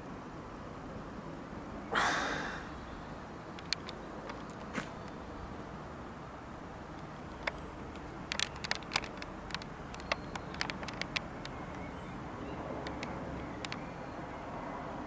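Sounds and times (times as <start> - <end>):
sharp clicks: 3.6 - 5.2, 7.0 - 11.9, 12.8 - 13.9.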